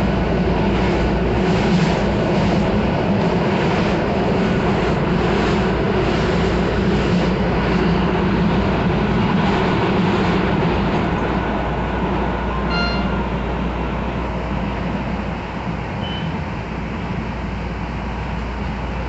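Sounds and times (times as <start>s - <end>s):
train wheels rumbling on rails: 0.0s - 19.0s
brief high tone: 12.7s - 13.3s.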